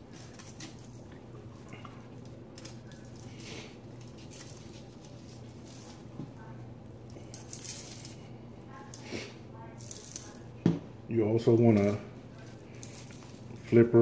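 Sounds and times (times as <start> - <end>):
low steady hum: 0.0 - 14.0
rub shaken from plastic shaker: 3.2 - 6.1.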